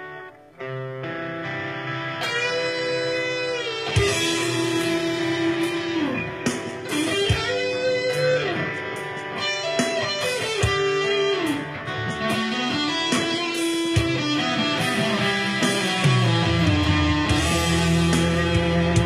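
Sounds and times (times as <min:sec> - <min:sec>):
electric guitar lead: 0:00.0 - 0:19.0
rock ballad backing track: 0:00.0 - 0:19.0
steady drum beat: 0:03.8 - 0:19.0.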